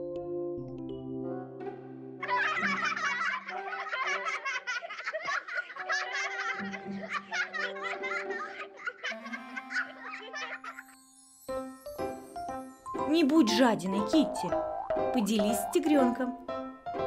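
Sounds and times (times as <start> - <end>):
light background music: 0.0 - 17.0
cartoon voices giggling and squealing: 7.4 - 10.9.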